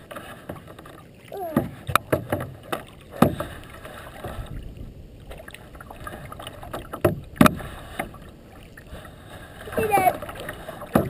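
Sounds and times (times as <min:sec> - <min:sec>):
paddle splashing in water: 0:00.0 - 0:11.0
knocks on kayak hull: 0:01.4 - 0:03.5, 0:06.7 - 0:08.2.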